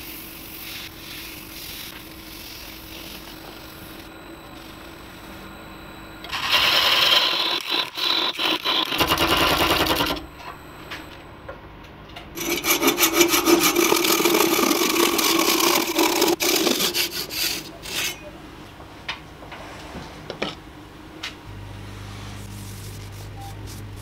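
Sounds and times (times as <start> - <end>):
handsaw cutting wood: 12.4 - 18.2
cloth rubbing on spinning wood: 22.2 - 24.0.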